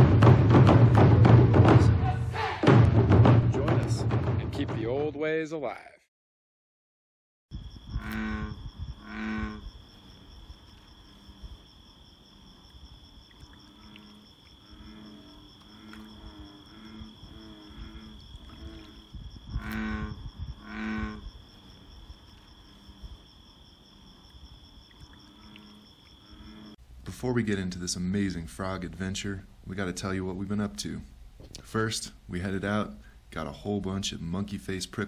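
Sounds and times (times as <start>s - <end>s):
bullfrogs calling: 7.5s - 26.8s
high insect trill: 7.5s - 26.8s.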